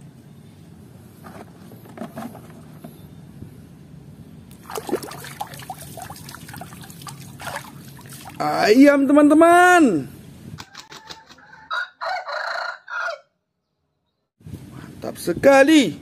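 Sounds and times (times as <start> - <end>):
wet mud squelches: 4.5 - 8.4.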